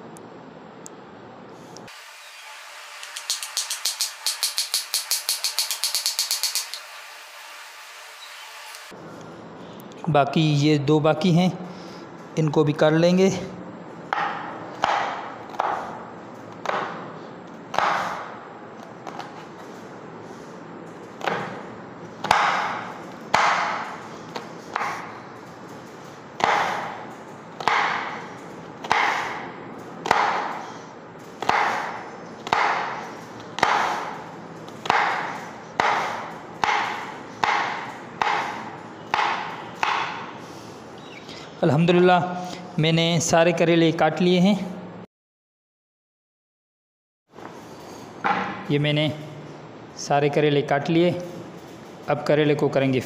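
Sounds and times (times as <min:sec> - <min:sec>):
blade knocking on wooden board: 0:03.0 - 0:06.8
knife chopping on cutting board: 0:03.0 - 0:06.8, 0:14.1 - 0:16.0, 0:17.7 - 0:18.3, 0:21.2 - 0:21.6, 0:22.2 - 0:23.8, 0:24.4 - 0:25.1, 0:26.4 - 0:27.0, 0:27.6 - 0:28.2, 0:28.8 - 0:29.4, 0:30.0 - 0:30.6, 0:31.4 - 0:33.0, 0:33.6 - 0:34.2, 0:34.8 - 0:40.2.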